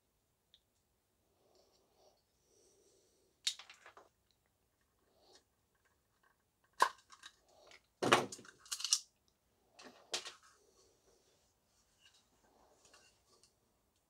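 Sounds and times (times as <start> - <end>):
plastic parts clicking and knocking: 3.4 - 4.2, 5.7 - 9.1, 9.8 - 10.4.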